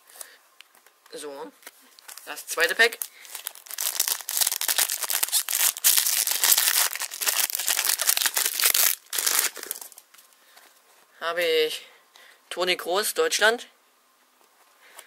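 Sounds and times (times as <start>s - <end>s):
foil wrapper tearing and crinkling: 2.0s - 10.0s.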